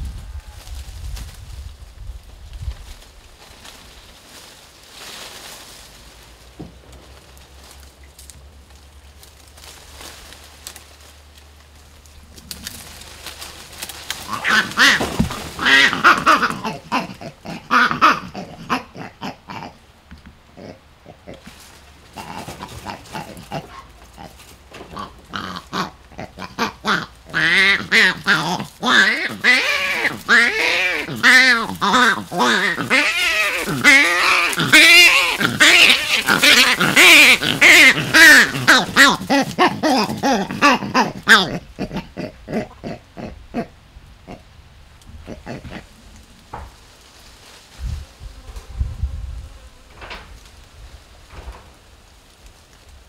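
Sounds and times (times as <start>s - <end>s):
monkeys calling: 14.2s - 19.8s, 24.8s - 43.3s.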